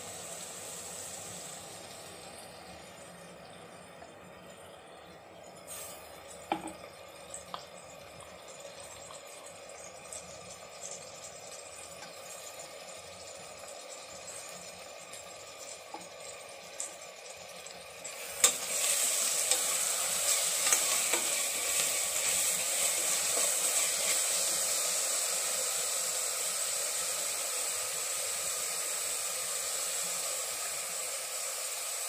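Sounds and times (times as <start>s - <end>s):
food sizzling in oil: 0.0s - 4.0s, 5.5s - 32.0s.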